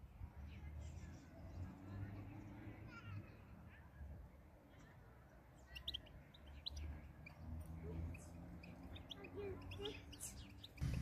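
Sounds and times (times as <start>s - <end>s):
goldfinches chirping and twittering: 5.6s - 11.0s.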